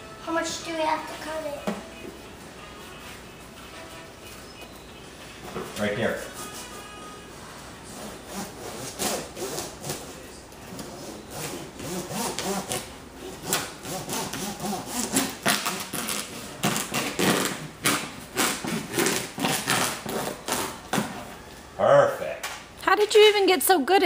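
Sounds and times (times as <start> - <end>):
hand saw cutting wood: 8.0 - 10.0, 13.4 - 16.1, 16.8 - 20.7.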